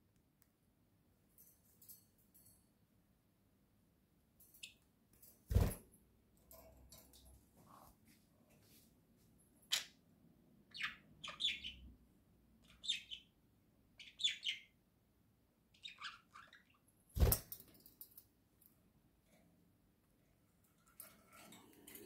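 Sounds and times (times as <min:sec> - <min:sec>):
budgerigars chirping: 0:10.7 - 0:11.8.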